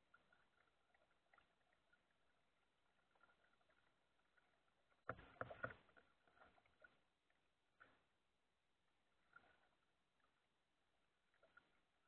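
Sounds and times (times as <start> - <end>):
paddle splashing strokes: 0.0 - 8.1.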